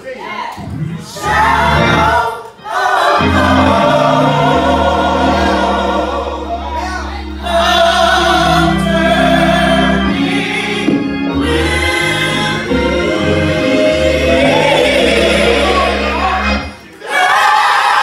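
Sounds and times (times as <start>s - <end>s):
lead voice singing: 0.6s - 17.2s
choir singing a hymn: 0.6s - 17.6s
instrumental backing with deep bass: 3.2s - 16.8s.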